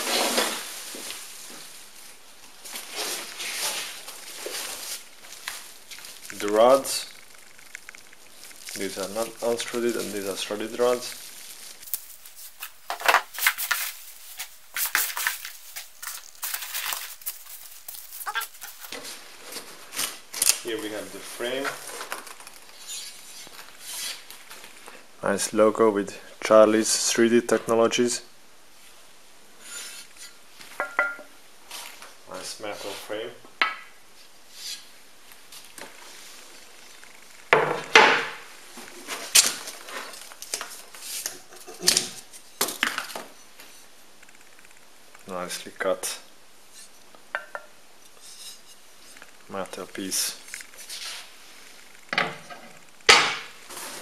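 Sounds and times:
packing peanuts rustling in box: 0.0s - 24.9s, 38.8s - 41.2s.

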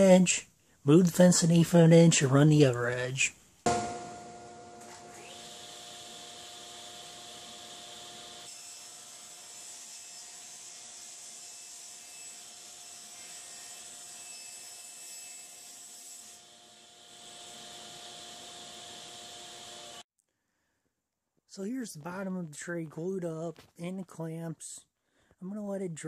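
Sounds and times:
table saw motor hum: 4.2s - 9.8s, 16.4s - 20.0s.

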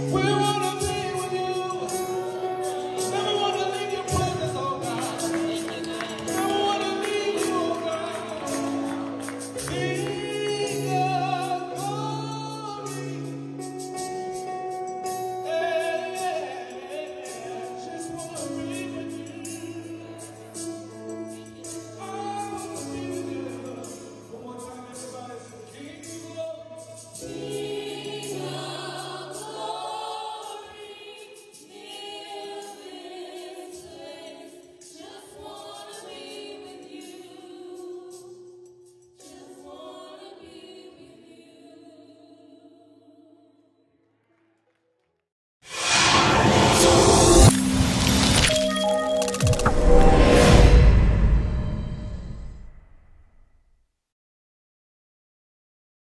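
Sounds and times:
women singing gospel: 27.3s - 38.3s, 39.2s - 43.7s.

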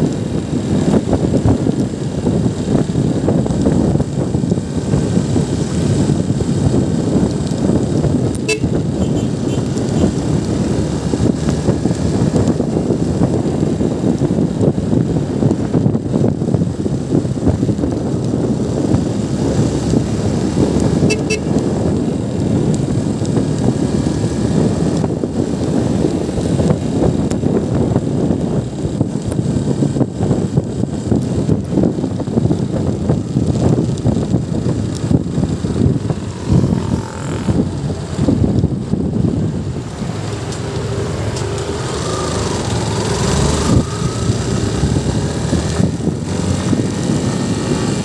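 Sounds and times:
motorcycle engine: 0.0s - 48.0s
wind rushing: 0.0s - 48.0s
motorcycle horn toots: 8.4s - 10.1s, 21.0s - 21.6s.

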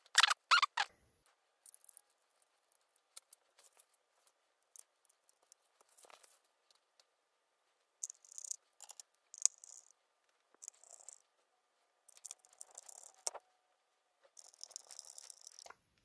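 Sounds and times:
clicks and scrapes of small parts: 1.6s - 7.1s, 8.0s - 11.3s, 12.1s - 13.5s, 14.2s - 15.8s.

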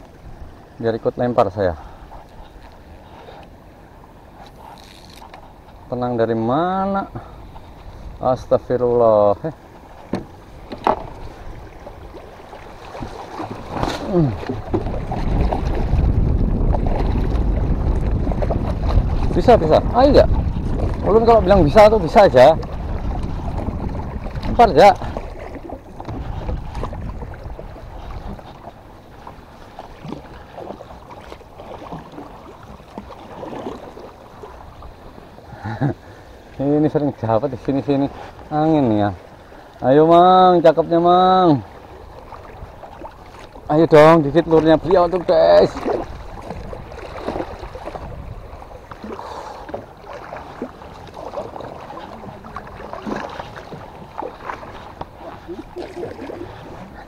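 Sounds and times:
water lapping against boat hull: 0.0s - 57.0s
wind rumbling on microphone: 7.0s - 35.9s, 41.9s - 57.0s.

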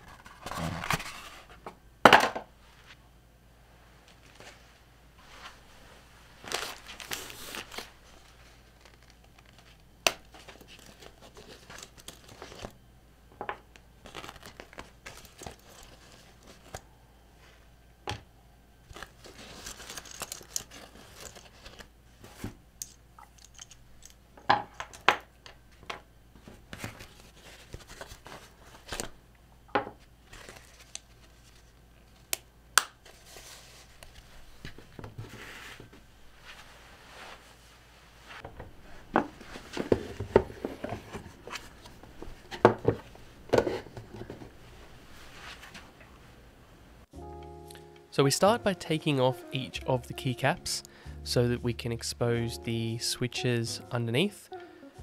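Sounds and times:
plastic packaging crinkling: 6.4s - 12.8s, 14.0s - 16.8s, 18.9s - 21.9s, 30.2s - 32.3s.

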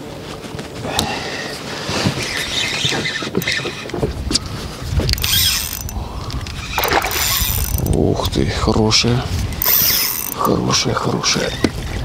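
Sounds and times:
fishing reel gears whirring and clicking: 2.7s - 4.0s, 5.1s - 8.0s, 9.5s - 10.5s.

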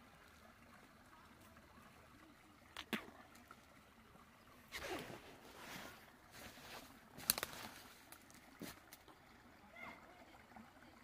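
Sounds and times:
soft rustling: 4.7s - 9.0s.

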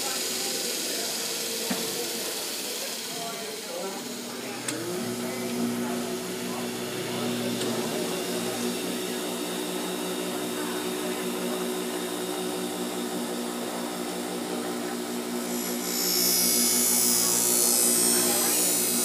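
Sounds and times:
bench grinder motor humming: 0.0s - 19.0s
blade grinding on wheel: 4.1s - 19.0s.

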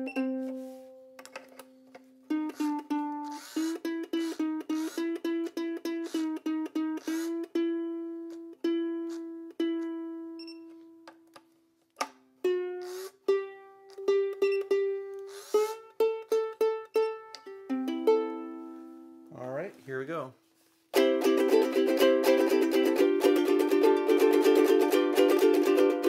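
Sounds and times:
ukulele string plucked: 0.0s - 11.2s, 15.9s - 19.3s, 21.0s - 26.0s.

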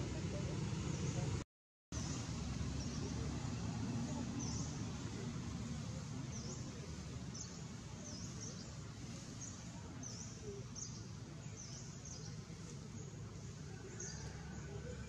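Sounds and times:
low outdoor rumble: 0.0s - 1.4s, 2.0s - 15.0s.

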